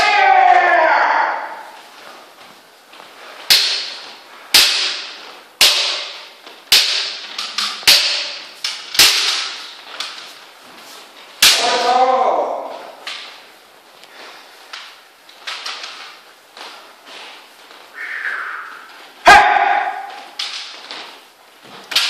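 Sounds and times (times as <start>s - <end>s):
person shouting: 0.0s - 1.8s, 11.6s - 13.0s, 18.0s - 20.3s
bamboo sword strikes cracking: 3.5s - 10.2s, 11.4s - 12.0s, 19.3s - 22.0s.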